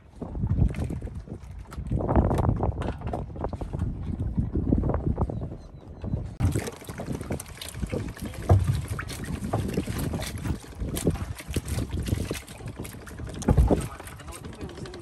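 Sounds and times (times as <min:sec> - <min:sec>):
water lapping against boat hull: 0:00.0 - 0:15.0
wind on microphone: 0:00.0 - 0:15.0
knocks on boat: 0:08.2 - 0:14.2.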